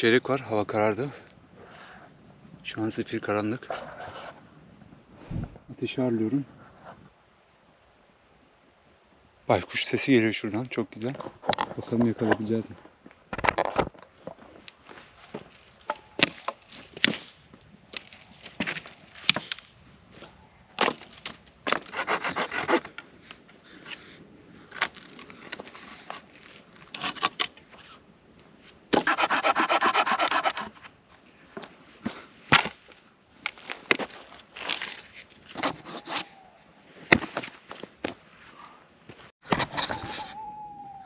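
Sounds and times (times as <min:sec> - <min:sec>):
wood rasping scrapes: 0:21.7 - 0:22.9, 0:29.0 - 0:30.9.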